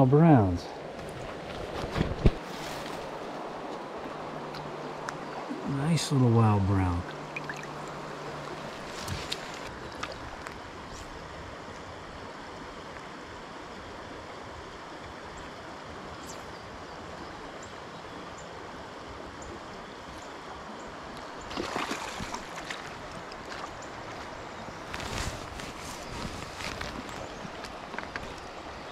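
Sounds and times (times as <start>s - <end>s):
creek water running over rocks: 0.1s - 28.9s
water splash: 7.3s - 10.4s, 21.5s - 23.6s.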